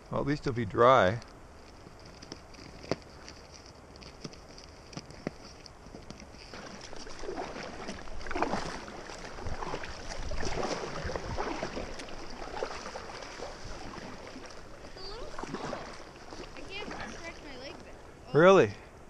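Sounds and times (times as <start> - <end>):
paddle strokes splashing water: 2.0 - 18.2.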